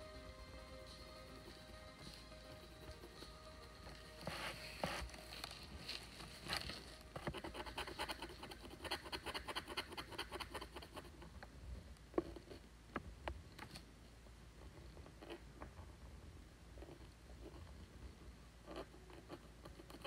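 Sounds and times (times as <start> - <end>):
stylus scratching a board: 4.2 - 5.1, 7.1 - 11.2.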